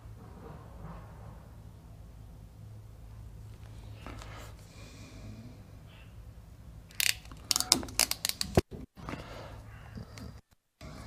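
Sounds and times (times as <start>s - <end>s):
crimping tool ratchet clicking: 6.9s - 8.6s.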